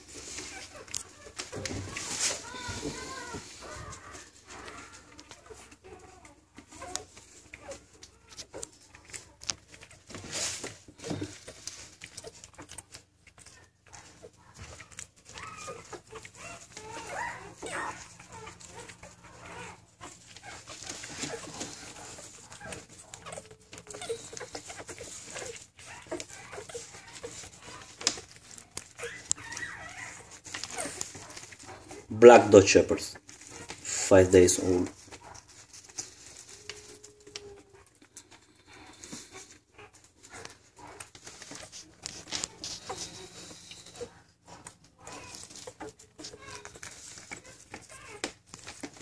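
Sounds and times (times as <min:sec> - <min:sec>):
clicks and rustles: 0:00.0 - 0:49.0
puppies squeaking: 0:00.0 - 0:49.0.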